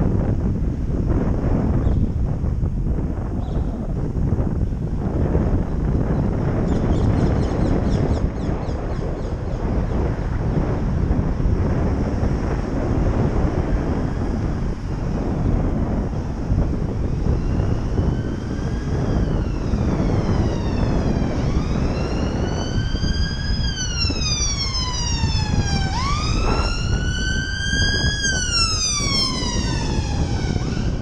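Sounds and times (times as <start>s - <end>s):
wind rumble on microphone: 0.0s - 31.0s
emergency siren wailing: 7.7s - 31.0s.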